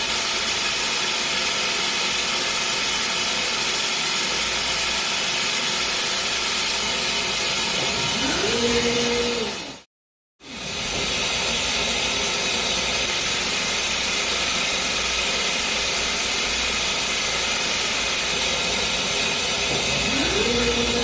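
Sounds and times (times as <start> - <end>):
laser engraving machine hissing: 1.8 - 9.8, 10.4 - 21.0
motor hum: 7.4 - 9.8, 10.5 - 21.0.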